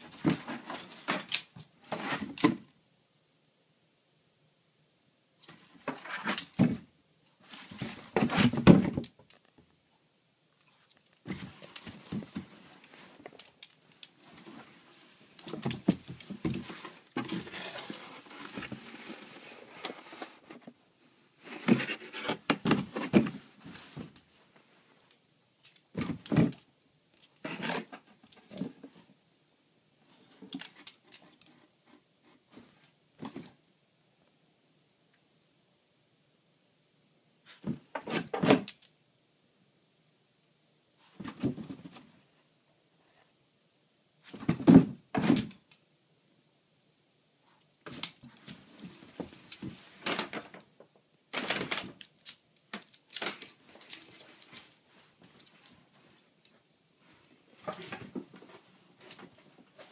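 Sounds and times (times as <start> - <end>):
cardboard scraping and rustling: 0.0 - 2.4, 5.6 - 6.8, 7.5 - 9.1, 14.2 - 20.8, 21.4 - 24.2.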